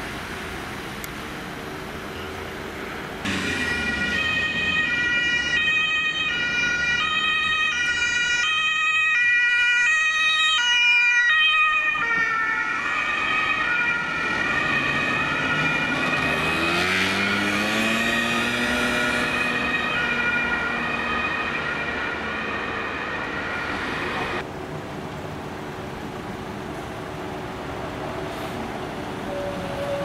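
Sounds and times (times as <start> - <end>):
road traffic: 0.0 - 30.0
ambulance two-tone siren: 3.2 - 24.4, 29.3 - 30.0.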